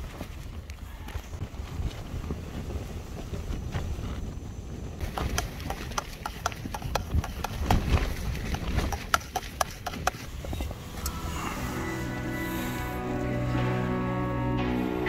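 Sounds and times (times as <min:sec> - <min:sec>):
wind rumbling on microphone: 0:00.0 - 0:11.9
sharp clicks and knocks: 0:05.0 - 0:10.3.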